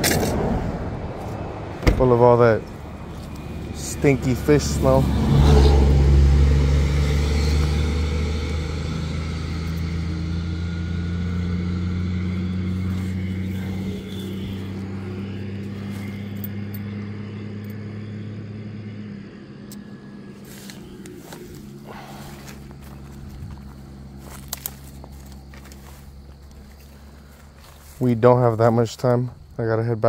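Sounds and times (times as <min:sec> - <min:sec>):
vehicle engine humming: 0:00.0 - 0:30.0
handling clicks and rustles: 0:01.2 - 0:04.9, 0:19.7 - 0:29.6.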